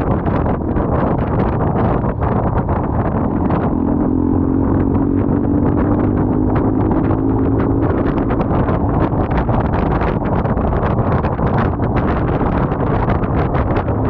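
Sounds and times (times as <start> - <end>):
motorcycle engine hum: 0.0 - 14.0
wind buffeting microphone: 0.0 - 14.0.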